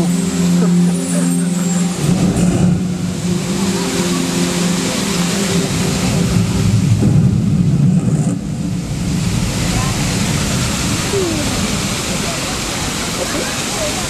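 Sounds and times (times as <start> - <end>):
low motor hum: 0.0 - 12.6
fountain water rushing: 0.0 - 14.0.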